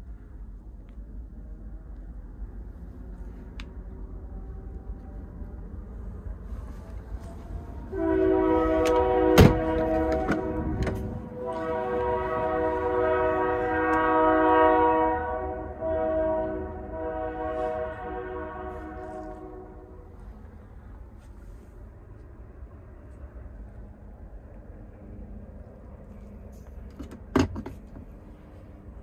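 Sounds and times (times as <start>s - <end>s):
train air horn chord: 7.8s - 20.0s.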